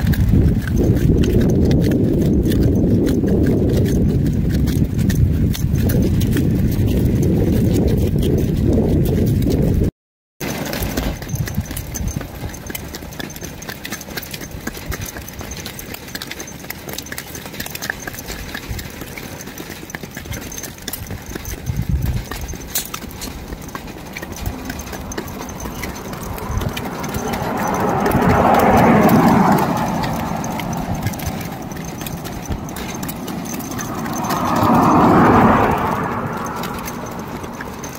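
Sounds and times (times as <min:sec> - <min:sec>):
hooves clip-clopping on pavement: 0:00.0 - 0:37.9
car passing: 0:22.2 - 0:37.9
steady low rumble: 0:23.4 - 0:37.8.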